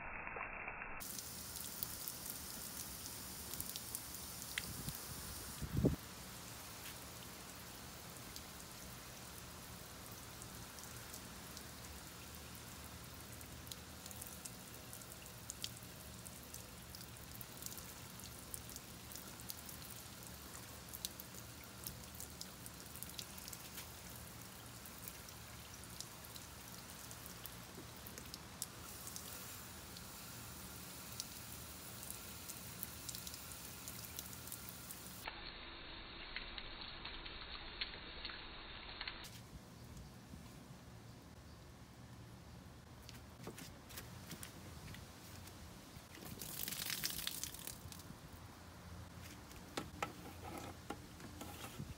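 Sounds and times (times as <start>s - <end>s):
raindrops ticking close by: 1.0s - 35.3s, 46.0s - 48.3s
steady rain falling: 1.0s - 39.4s, 46.0s - 51.9s.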